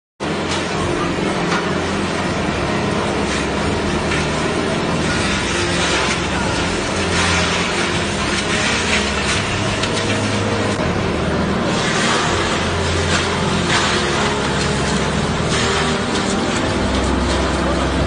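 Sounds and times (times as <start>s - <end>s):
motor hum: 0.2s - 18.0s.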